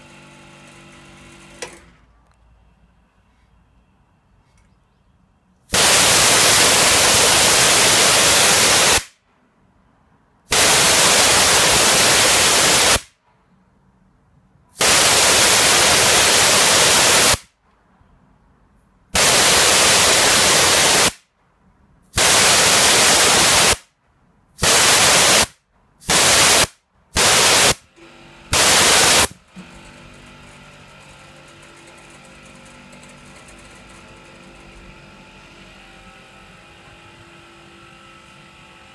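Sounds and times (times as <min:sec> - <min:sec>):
compressor motor running: 0:05.7 - 0:09.0, 0:10.5 - 0:13.0, 0:14.8 - 0:17.4, 0:19.2 - 0:21.1, 0:22.2 - 0:23.8, 0:24.6 - 0:38.9
compressed air hissing releases: 0:14.8 - 0:17.4, 0:22.2 - 0:23.8, 0:24.6 - 0:27.8, 0:28.6 - 0:29.3.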